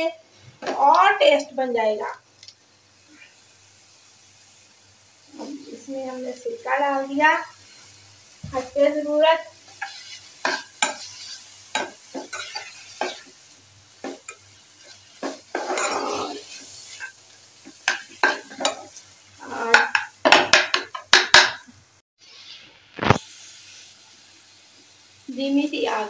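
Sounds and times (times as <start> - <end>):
faint frying sizzle: 0.0 - 26.0
metal spoon scraping a pan: 9.7 - 13.3, 14.0 - 17.2, 17.8 - 19.0
spoon knocking on pan: 9.8 - 11.1, 11.7 - 13.3, 17.7 - 18.9, 19.7 - 21.7.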